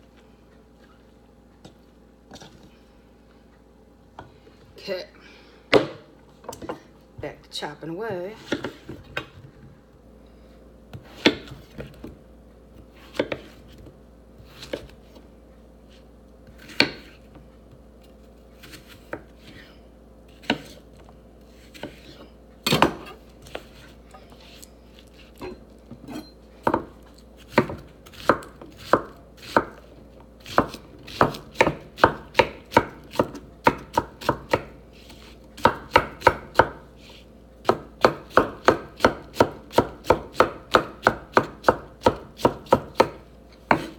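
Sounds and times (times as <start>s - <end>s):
knife chopping on wooden board: 5.7s - 6.8s, 10.9s - 12.1s, 13.1s - 13.7s, 16.6s - 17.2s, 20.4s - 20.8s, 25.4s - 43.9s.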